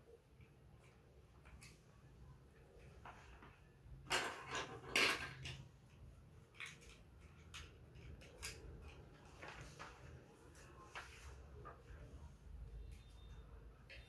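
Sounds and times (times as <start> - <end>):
plastic blocks clicking and rattling: 4.1 - 5.6, 6.4 - 9.0.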